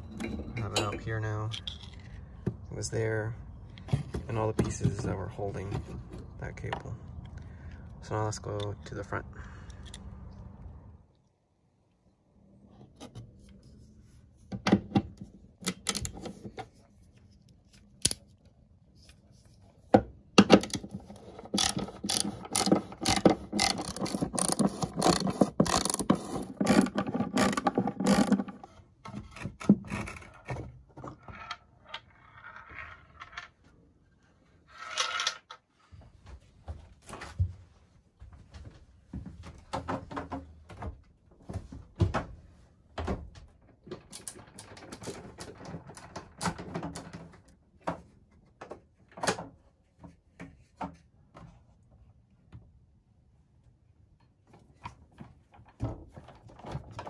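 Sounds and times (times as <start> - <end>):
ratcheting screwdriver clicking: 21.6 - 26.0.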